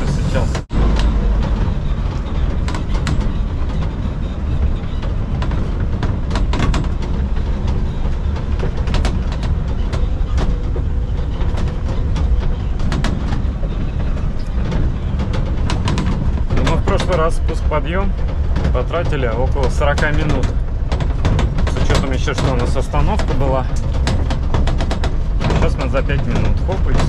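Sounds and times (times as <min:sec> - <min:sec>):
engine and tyres rumbling: 0:00.0 - 0:27.0
metal frame rattling: 0:00.0 - 0:27.0.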